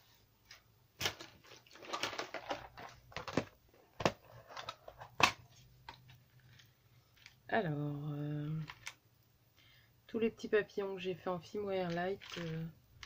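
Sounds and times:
plastic box rustling: 0:00.5 - 0:07.4, 0:11.9 - 0:12.7.

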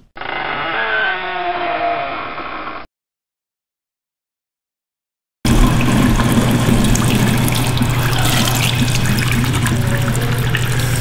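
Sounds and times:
water running from faucet onto hands: 0:05.5 - 0:11.0.

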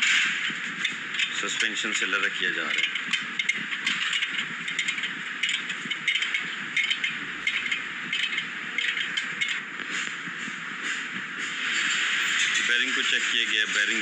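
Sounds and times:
steady background hiss: 0:00.0 - 0:14.0
hand tools clicking on metal: 0:00.8 - 0:09.6.

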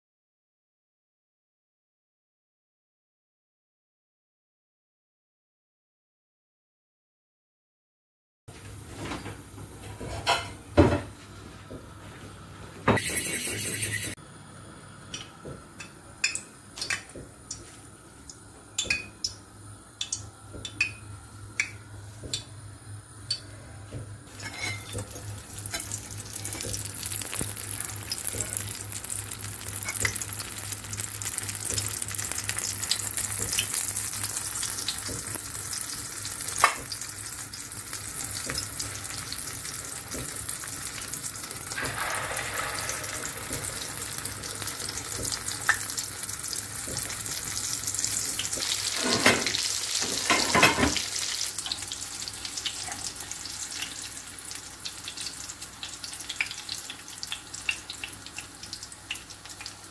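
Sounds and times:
oil sizzling in a pan: 0:24.3 - 0:59.9.

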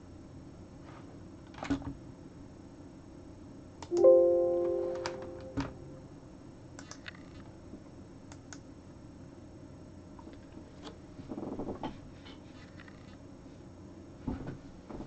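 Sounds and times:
musical chord: 0:03.9 - 0:06.2.

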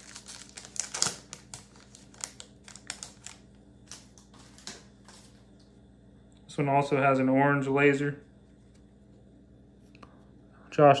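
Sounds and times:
cards clicking and foil crinkling: 0:00.0 - 0:05.4.

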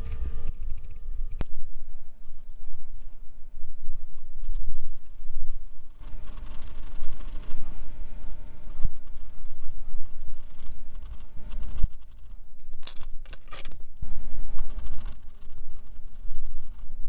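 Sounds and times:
low rubbing rumble: 0:00.0 - 0:17.0
pencil scratching on paper: 0:04.4 - 0:12.4, 0:14.6 - 0:17.0.

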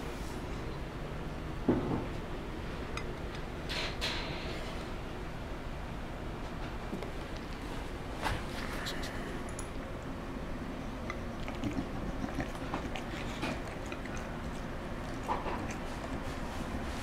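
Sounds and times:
steady low hum: 0:00.0 - 0:17.0
dog chewing and biting: 0:10.9 - 0:17.0.

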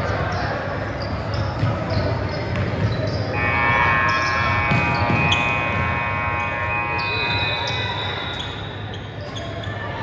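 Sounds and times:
basketballs bouncing on court: 0:00.0 - 0:09.7
scoreboard buzzer long tone: 0:03.3 - 0:08.3.

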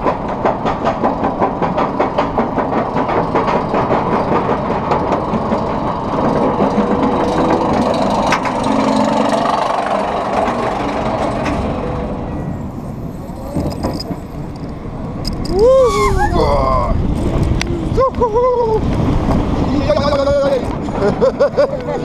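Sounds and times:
roller coaster chain lift clicking: 0:00.0 - 0:16.1
roller coaster train rumbling: 0:00.0 - 0:22.0.

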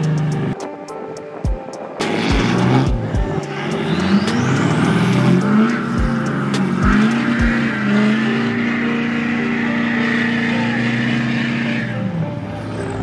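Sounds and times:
truck engine revving: 0:00.0 - 0:00.6, 0:01.8 - 0:13.0
tyres spinning spraying sand: 0:02.0 - 0:11.8.

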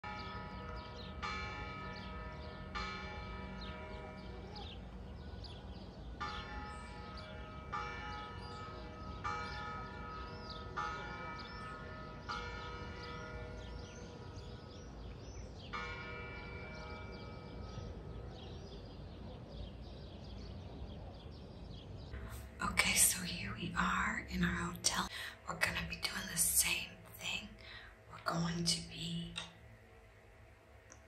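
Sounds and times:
church bell tolling: 0:00.0 - 0:19.3
birds chirping: 0:00.1 - 0:29.6.

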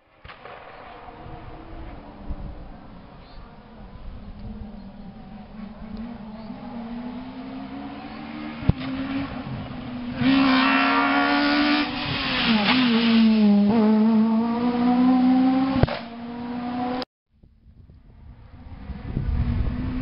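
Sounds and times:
rally car engine at high revs: 0:05.0 - 0:17.0.

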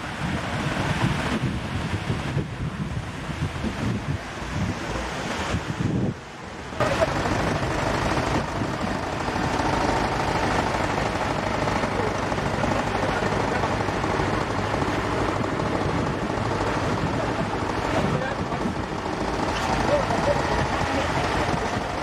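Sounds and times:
waves washing up beach: 0:00.0 - 0:22.0
wind on microphone: 0:00.0 - 0:22.0
tractor engine running: 0:06.8 - 0:22.0.

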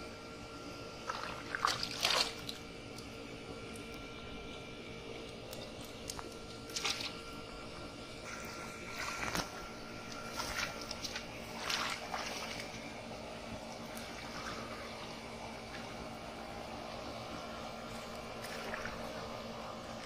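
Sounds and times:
splashing in shallow muddy water: 0:01.0 - 0:02.6, 0:06.7 - 0:07.2, 0:08.3 - 0:13.0, 0:13.8 - 0:16.0, 0:18.1 - 0:19.2.

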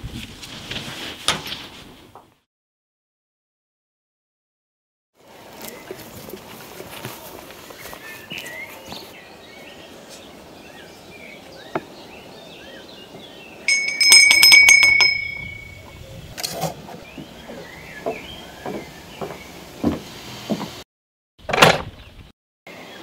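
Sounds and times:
birds chirping: 0:05.4 - 0:20.0
small metal bell ringing: 0:13.7 - 0:16.0.

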